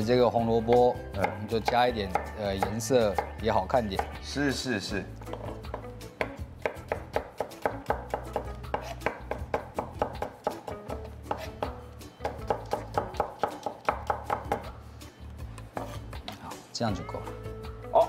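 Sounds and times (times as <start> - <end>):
knife knocking on wooden board: 5.2 - 14.7.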